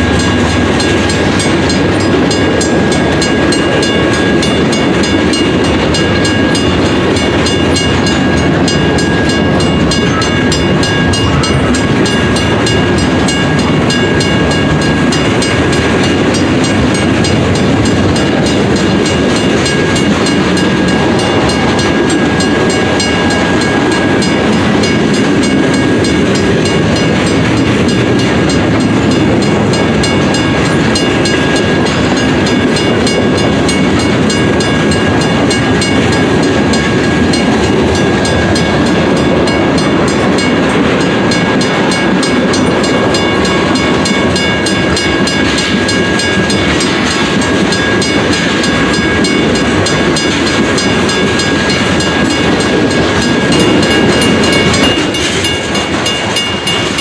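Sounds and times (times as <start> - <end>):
high ringing tone: 0.0 - 14.7
steel wheels rumbling on rails: 0.0 - 57.0.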